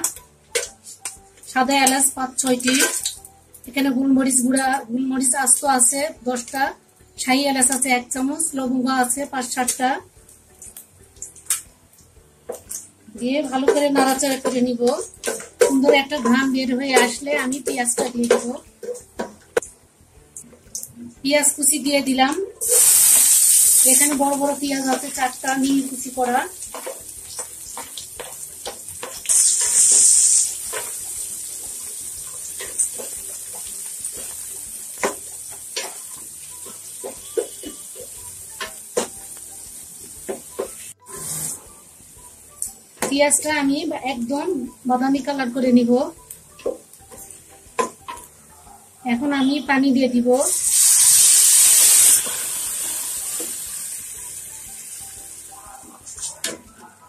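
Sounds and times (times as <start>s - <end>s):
onions sizzling in oil: 0.0s - 6.6s, 21.4s - 48.4s, 49.0s - 56.3s
spatula scraping pan: 41.0s - 41.7s.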